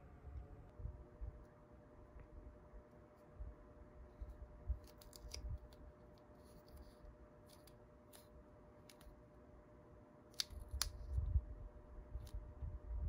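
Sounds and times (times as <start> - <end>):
paper sticker clicks and crinkles: 4.8 - 9.1, 10.3 - 11.1.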